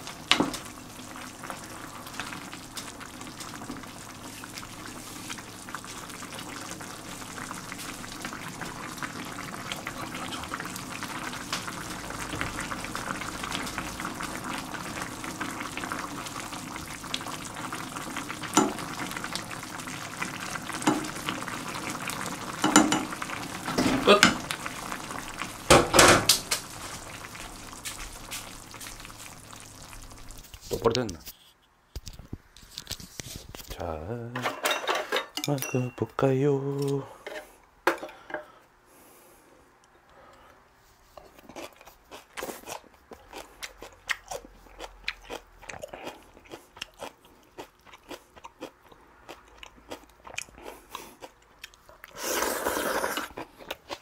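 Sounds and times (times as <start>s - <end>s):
broth bubbling in a pot: 0.0s - 30.8s.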